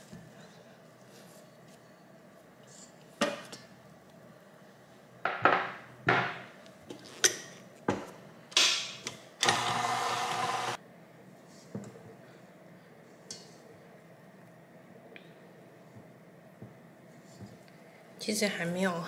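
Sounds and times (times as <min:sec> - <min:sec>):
dough-kneading machine running: 0:09.4 - 0:10.8.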